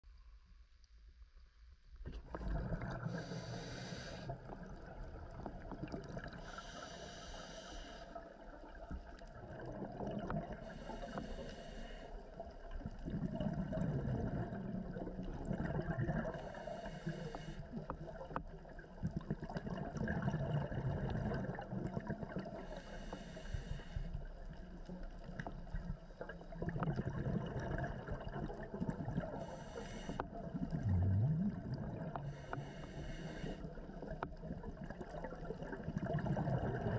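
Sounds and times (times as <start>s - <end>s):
bubbles rumbling and gurgling: 2.0s - 7.2s, 8.1s - 11.5s, 12.2s - 36.9s
regulator hissing on inhalation: 3.1s - 4.3s, 6.4s - 8.2s, 10.7s - 12.1s, 16.4s - 17.7s, 29.4s - 30.2s, 32.3s - 33.6s.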